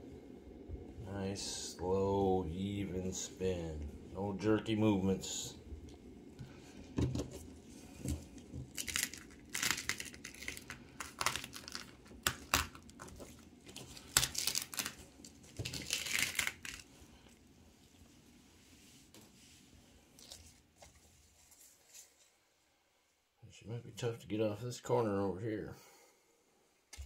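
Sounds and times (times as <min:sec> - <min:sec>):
canvas crinkling and rustling: 0:06.8 - 0:22.4.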